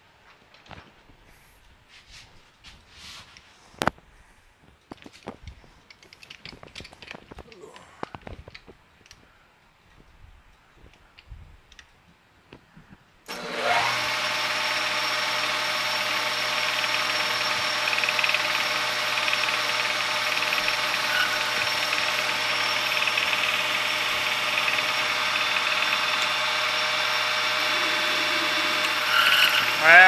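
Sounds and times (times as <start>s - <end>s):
metal lathe running: 13.3s - 30.0s.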